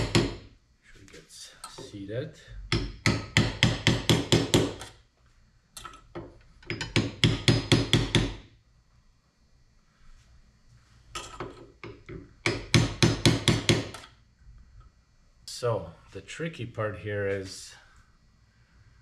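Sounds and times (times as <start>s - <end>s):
hammer tapping metal rod: 2.7s - 4.9s.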